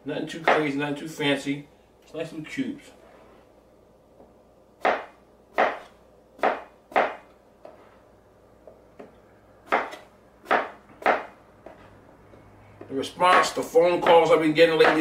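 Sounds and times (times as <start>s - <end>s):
knife chopping on cutting board: 4.8s - 7.8s, 9.6s - 11.9s, 12.8s - 15.0s.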